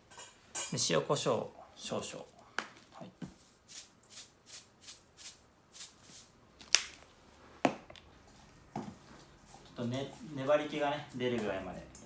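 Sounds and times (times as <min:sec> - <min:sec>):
shaker rattling grains: 0:03.7 - 0:06.3.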